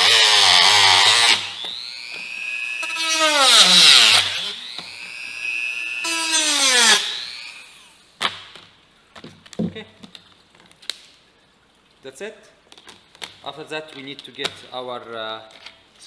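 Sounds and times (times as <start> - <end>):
rotary tool cutting plastic: 0.0 - 8.4.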